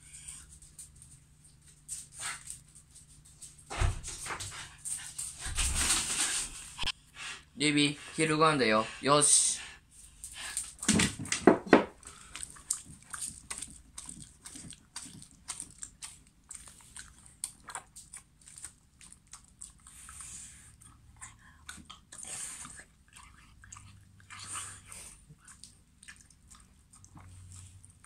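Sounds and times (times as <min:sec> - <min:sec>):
dog eating wet food: 0:11.9 - 0:28.0.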